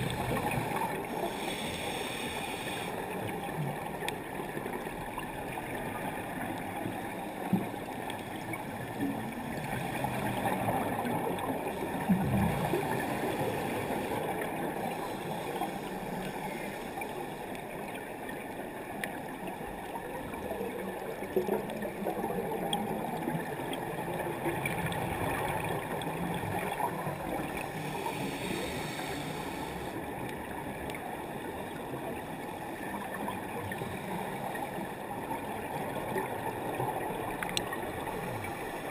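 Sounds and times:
scuba regulator bubbling: 0.0s - 3.9s, 22.2s - 31.0s
faint clicks: 7.4s - 8.6s, 19.0s - 19.2s, 37.2s - 38.6s.

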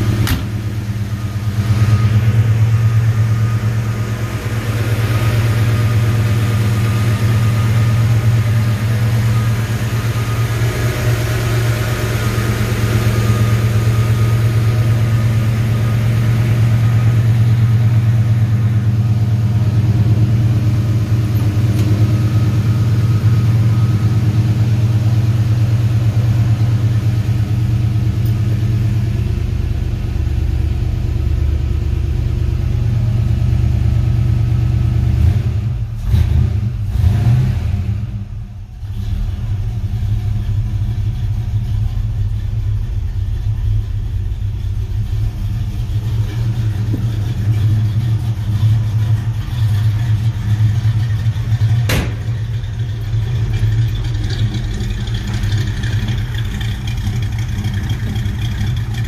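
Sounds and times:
car engine idling: 0.0s - 37.1s, 38.1s - 59.0s.

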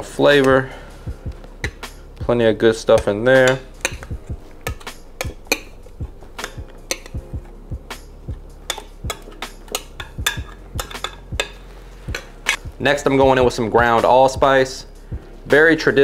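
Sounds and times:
faint background music: 0.0s - 16.0s
utensil knocking against metal pot: 1.2s - 2.0s, 2.8s - 12.7s.

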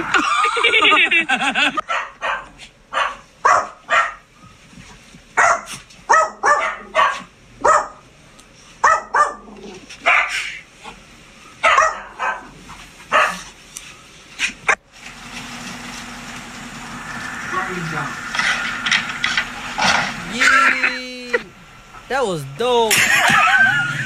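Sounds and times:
dog barking: 1.8s - 4.2s, 5.4s - 8.0s, 8.8s - 10.6s, 11.6s - 13.5s.

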